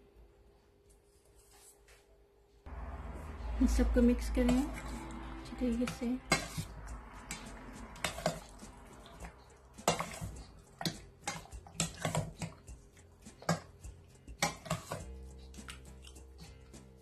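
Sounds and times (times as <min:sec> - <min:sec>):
spoon scraping metal bowl: 0:04.2 - 0:16.5.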